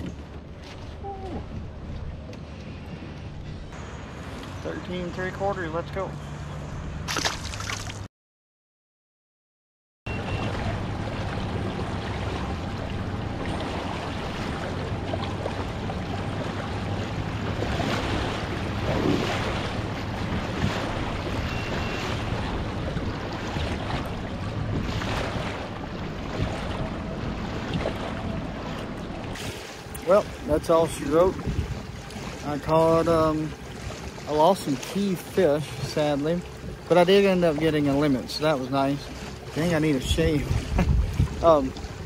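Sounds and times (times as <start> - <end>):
water rushing and splashing: 0.0 - 8.1, 10.1 - 42.0
wind buffeting microphone: 10.5 - 34.1, 39.8 - 42.0.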